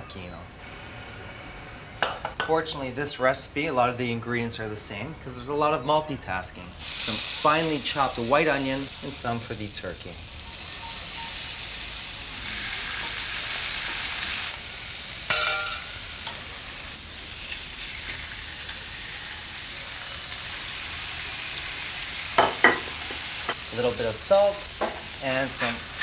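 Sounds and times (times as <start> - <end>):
onion sizzling in oil: 6.7 - 26.0.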